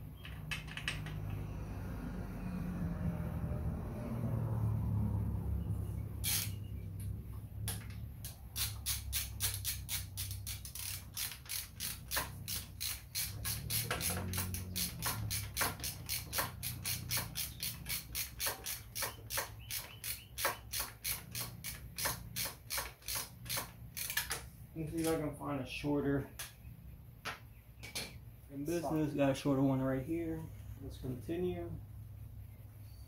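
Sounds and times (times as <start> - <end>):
hand ratchet clicking: 6.2 - 6.6, 7.7 - 25.2.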